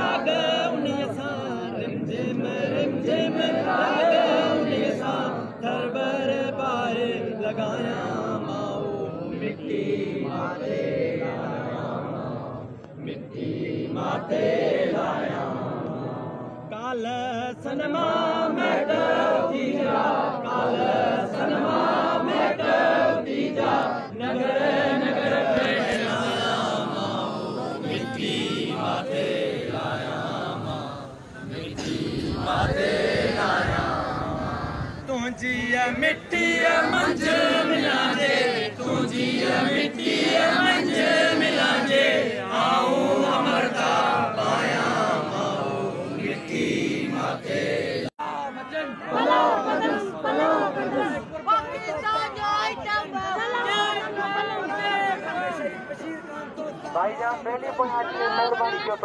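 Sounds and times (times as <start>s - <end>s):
crowd chanting slogans: 0.0s - 59.0s.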